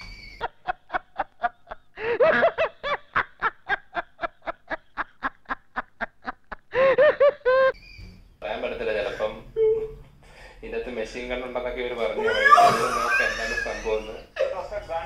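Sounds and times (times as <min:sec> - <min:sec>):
person laughing: 0:12.2 - 0:14.6.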